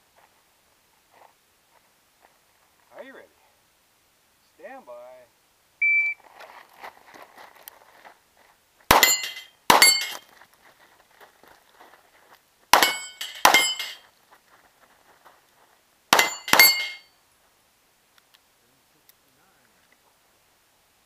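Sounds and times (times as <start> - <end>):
pistol shots: 8.9 - 10.0, 12.8 - 13.8
metallic ring of steel plate: 9.0 - 10.2, 12.8 - 14.0, 16.2 - 17.1.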